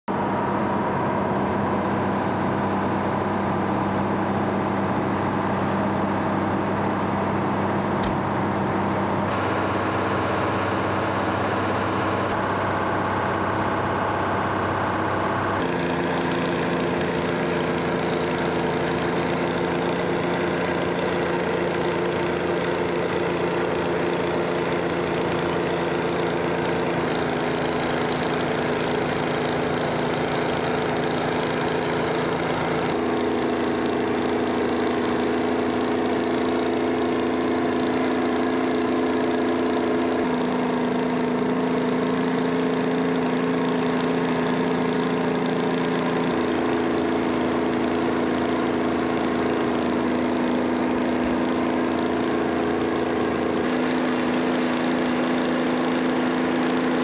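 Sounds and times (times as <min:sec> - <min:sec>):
diesel engines running: 0:00.1 - 0:57.0
sharp click: 0:08.0 - 0:08.2.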